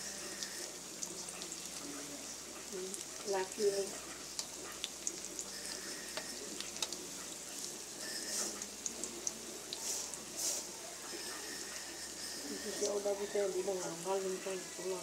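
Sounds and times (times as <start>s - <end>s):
oil sizzling and crackling: 0.0s - 15.0s
scrape in pan: 8.0s - 8.7s, 9.8s - 12.8s.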